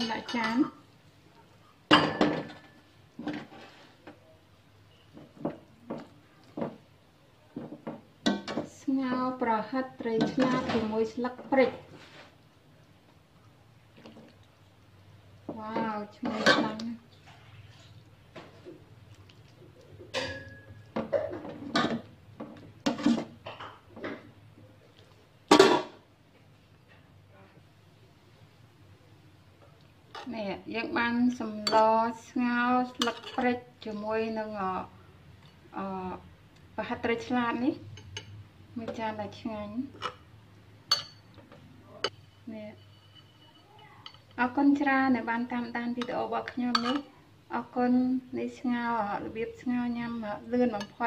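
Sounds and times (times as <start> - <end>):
metal ladle clinking on a pot: 20.1 - 21.0, 45.6 - 47.1.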